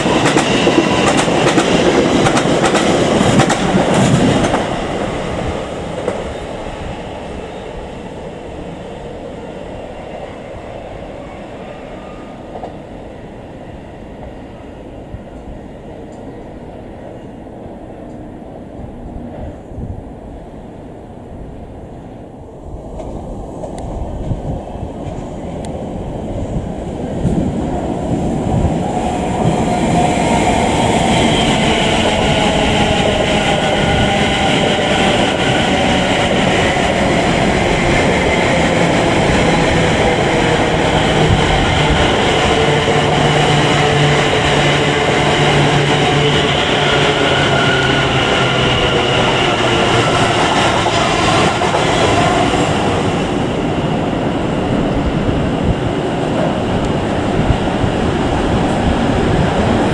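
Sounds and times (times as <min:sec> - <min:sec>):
train wheels rumbling on rail: 0:00.0 - 0:20.6, 0:21.2 - 0:59.9.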